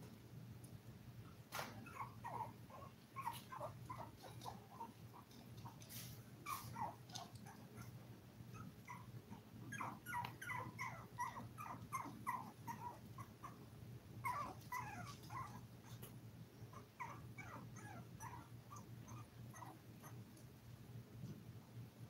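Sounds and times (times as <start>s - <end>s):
puppies whimpering: 1.9s - 5.3s, 9.7s - 13.6s, 14.2s - 15.6s, 16.8s - 20.2s.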